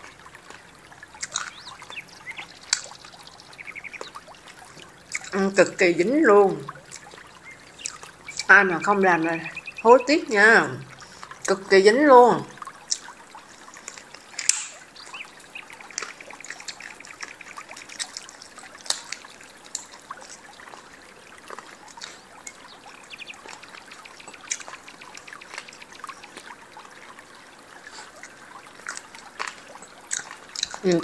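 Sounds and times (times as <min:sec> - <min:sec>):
wet chewing and sucking: 0:00.0 - 0:05.4, 0:06.6 - 0:08.5, 0:12.6 - 0:27.2, 0:27.8 - 0:31.0
sharp mouth clicks: 0:01.2 - 0:02.0, 0:12.9 - 0:13.1.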